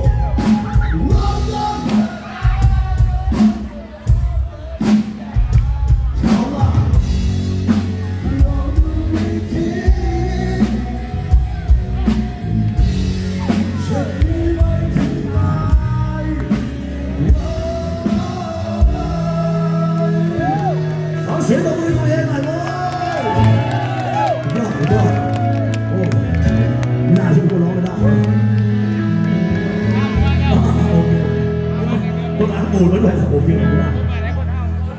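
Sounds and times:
person singing: 0.0s - 12.4s, 13.4s - 23.7s
live rock band playing: 0.0s - 34.9s.

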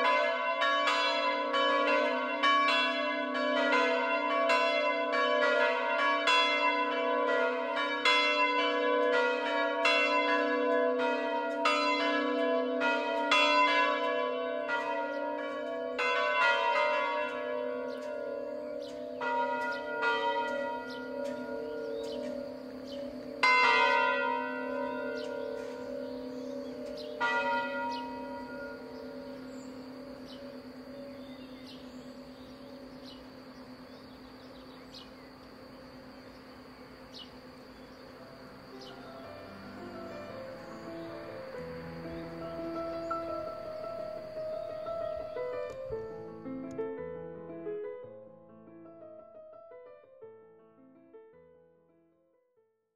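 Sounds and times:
church bells ringing: 0.0s - 46.7s.

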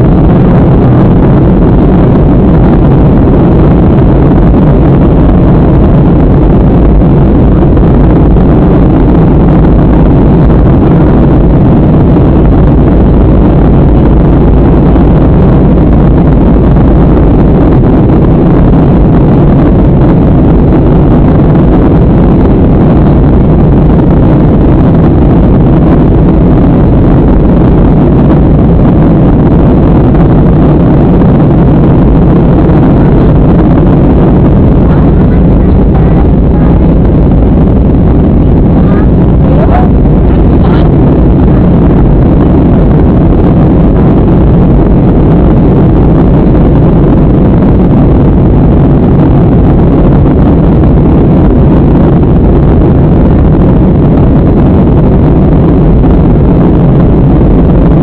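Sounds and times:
airplane cabin engine rumble: 0.0s - 58.0s.

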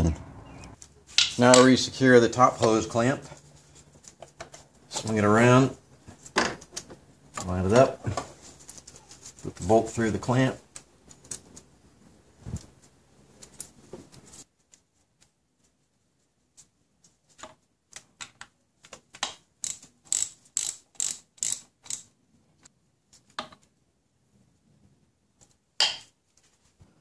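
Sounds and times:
socket ratchet clicking: 19.6s - 22.1s.

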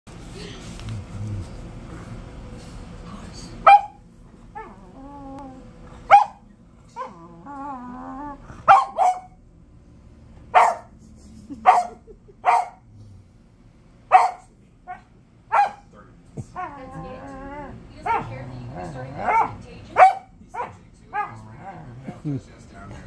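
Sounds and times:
dog barking: 3.6s - 4.0s, 6.0s - 6.4s, 7.0s - 7.2s, 8.6s - 9.4s, 10.5s - 10.9s, 11.6s - 12.8s, 14.1s - 15.9s, 18.0s - 18.5s, 19.1s - 21.4s
dog whining: 3.7s - 9.2s, 16.4s - 19.5s.

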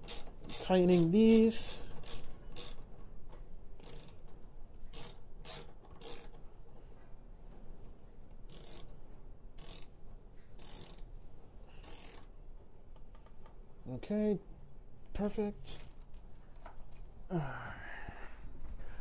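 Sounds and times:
hand ratchet clicking: 0.0s - 6.5s, 8.4s - 12.4s.

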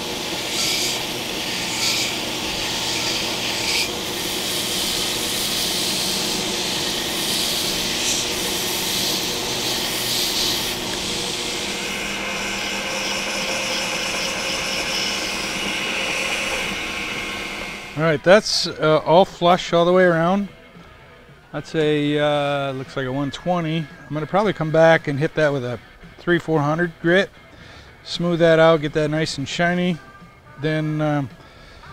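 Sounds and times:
abrasive belt rasping on metal: 0.0s - 18.0s
belt grinder motor hum: 0.0s - 18.2s.

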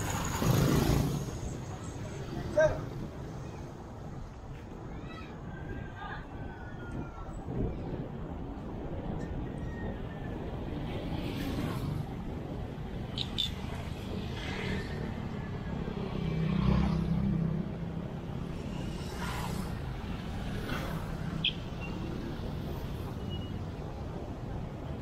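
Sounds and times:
bike road rumble: 0.0s - 25.0s
wind: 0.0s - 25.0s.

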